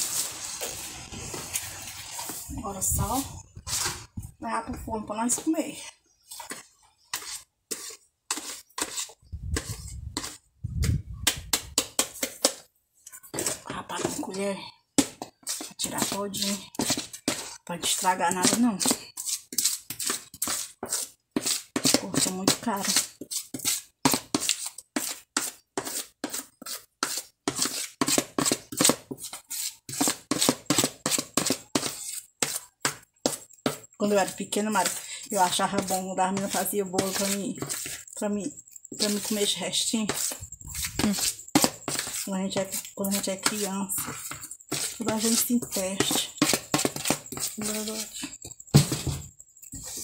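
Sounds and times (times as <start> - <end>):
spoon scraping and tapping bowl: 11.7 - 50.0.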